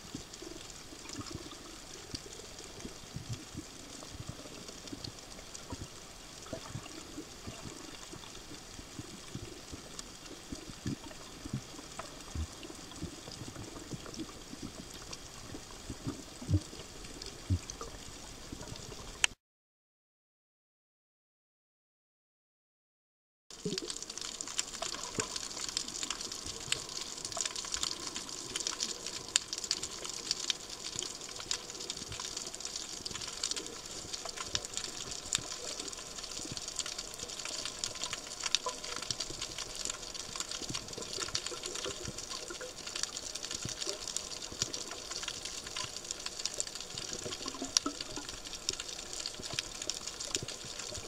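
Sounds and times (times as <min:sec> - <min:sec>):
underwater hiss with sharp clicks: 0:23.6 - 0:51.0.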